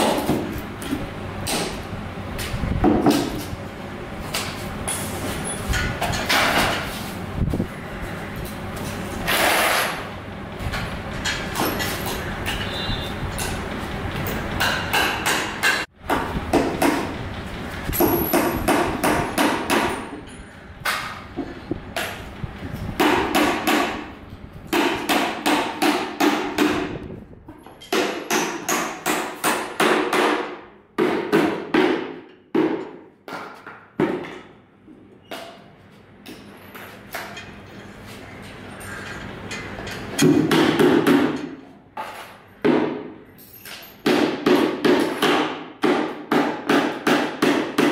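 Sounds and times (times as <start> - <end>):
hammer nailing wood: 14.6 - 17.1, 18.0 - 20.1, 23.0 - 24.0, 24.7 - 27.0, 27.9 - 34.4, 40.2 - 41.4, 44.0 - 47.9.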